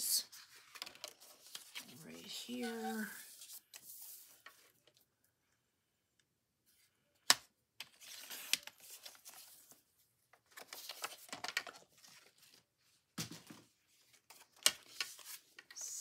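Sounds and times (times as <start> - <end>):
paper handling noise: 0.3 - 5.0, 7.8 - 15.9.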